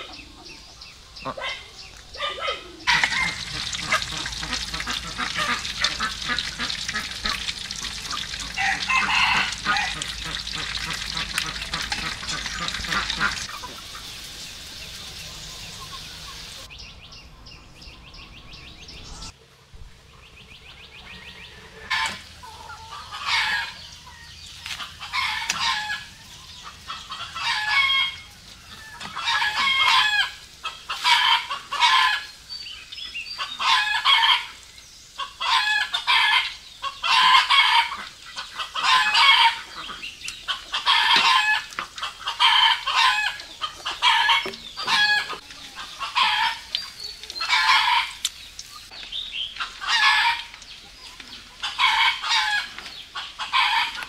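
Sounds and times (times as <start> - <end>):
chickens calling: 0.0 - 19.4, 20.0 - 54.0.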